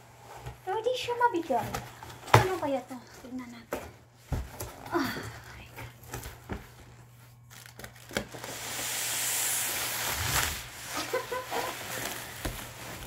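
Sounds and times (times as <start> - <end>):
packing material scraping and rustling: 7.3 - 13.0
cardboard sliding against cardboard: 8.4 - 13.0.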